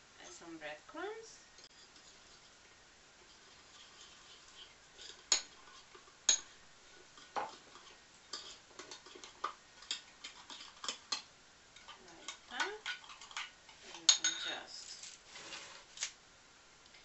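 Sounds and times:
metal spoon clinking on ceramic bowl: 9.8 - 14.5.

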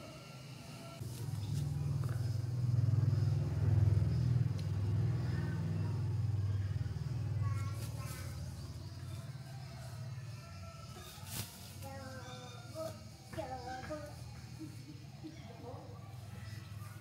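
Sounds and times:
motor vehicle engine drone: 0.0 - 10.8.

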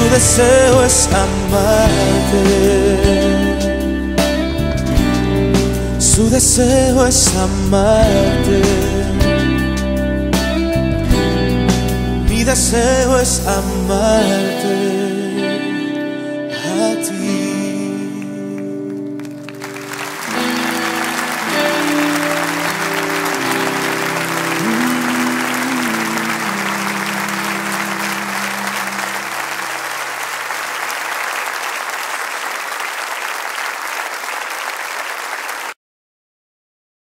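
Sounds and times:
worship song chords: 0.0 - 30.5
audience applauding: 18.8 - 35.8.

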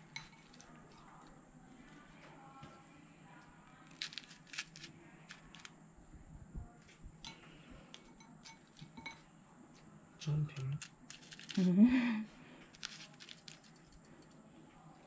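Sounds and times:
prawns clicking on salt: 3.9 - 5.7, 10.5 - 11.7, 12.7 - 14.4.

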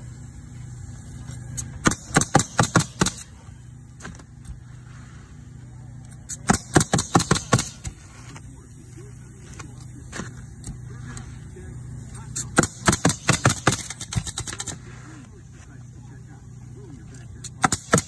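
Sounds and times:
steady low hum: 0.0 - 18.0
pneumatic nailer firing: 1.1 - 4.6, 6.1 - 8.1, 12.3 - 15.0, 17.4 - 18.0.

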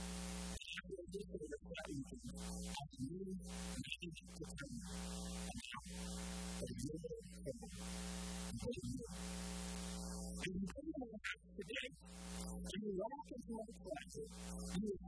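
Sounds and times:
electrical hum and hiss: 0.0 - 0.6, 3.4 - 10.6, 12.0 - 12.7, 13.9 - 14.9.

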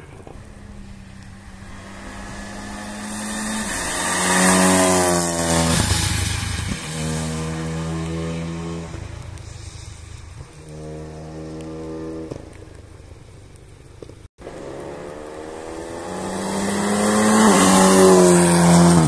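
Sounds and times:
rally car engine accelerating: 14.4 - 19.0.

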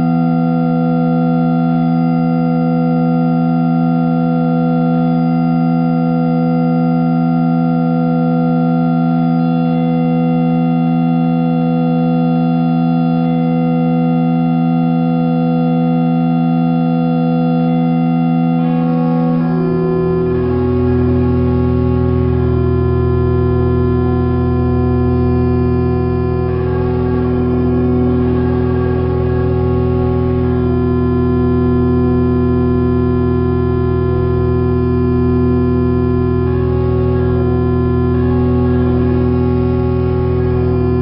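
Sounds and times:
sustained keyboard chords: 17.7 - 30.5.

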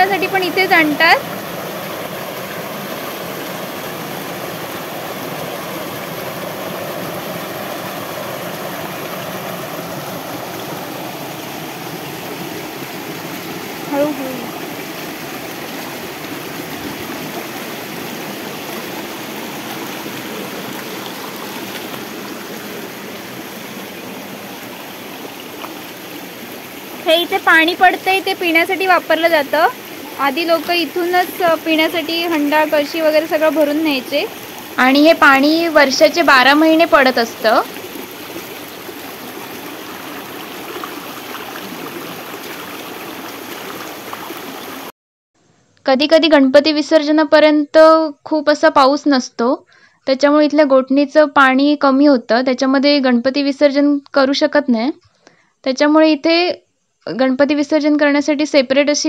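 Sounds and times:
water running from a spring: 0.0 - 44.9.

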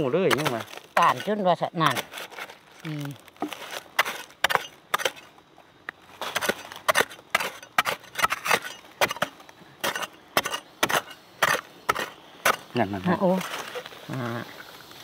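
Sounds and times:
metal blade chopping into soil: 0.0 - 2.5, 3.4 - 5.3, 6.2 - 12.7.

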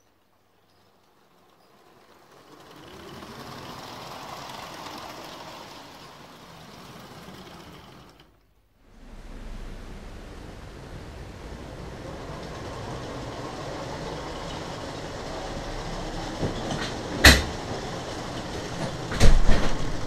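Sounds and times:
wheels rattling over plastic track: 0.0 - 8.4, 11.5 - 20.0
toy train motor whirring: 0.6 - 8.4.

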